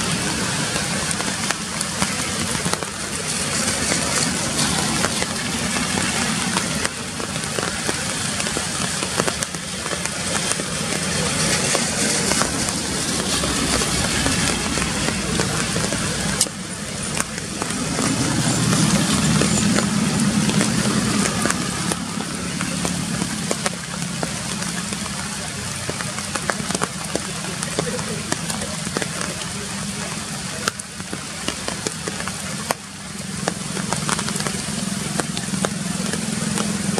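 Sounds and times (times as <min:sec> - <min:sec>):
rain falling on leaves: 0:00.0 - 0:36.9
water drips and patters: 0:00.0 - 0:36.9.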